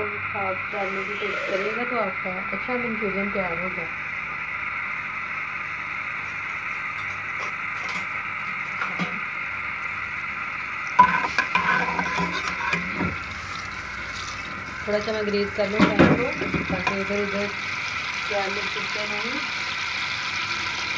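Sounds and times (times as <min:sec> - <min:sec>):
metal spoon scraping a pan: 0:00.8 - 0:01.8, 0:11.0 - 0:13.6.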